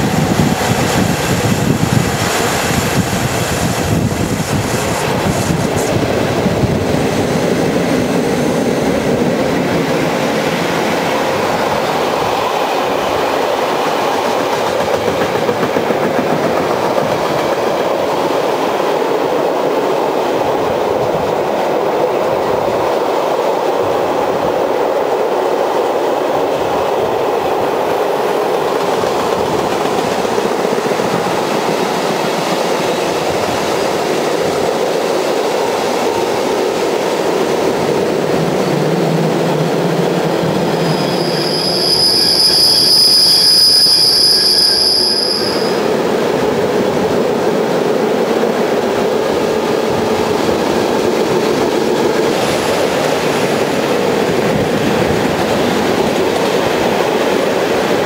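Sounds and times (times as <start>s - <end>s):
trains running: 0.0s - 58.0s
steel wheel squeal: 40.7s - 46.0s.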